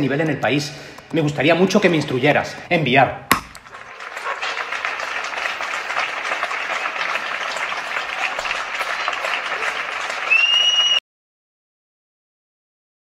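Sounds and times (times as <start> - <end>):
crowd applause: 3.6 - 11.0
high whistle: 10.2 - 11.0.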